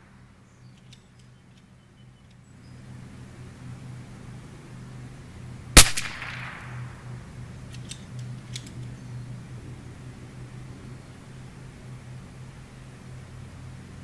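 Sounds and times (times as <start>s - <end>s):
steady low hum: 0.0s - 14.0s
rifle shot with echo: 5.8s - 7.2s.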